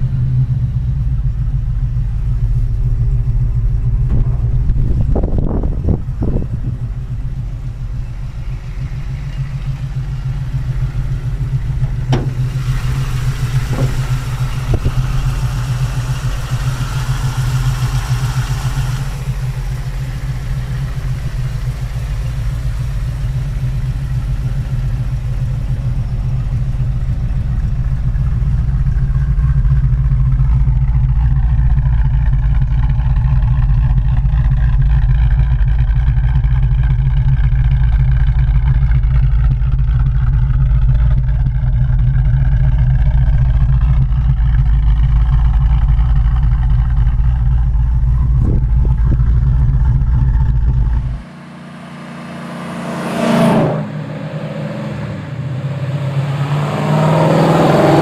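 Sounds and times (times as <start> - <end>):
engine knocks: 0.0 - 51.4
car engine idling: 0.0 - 56.4
hiss: 12.3 - 24.2.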